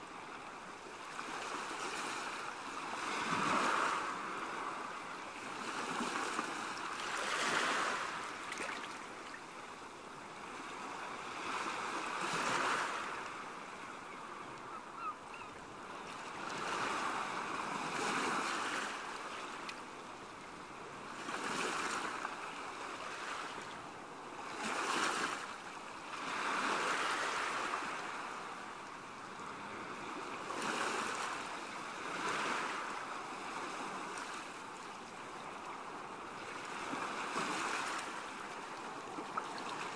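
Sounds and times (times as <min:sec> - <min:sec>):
sea waves washing onto shore: 0:01.2 - 0:09.6.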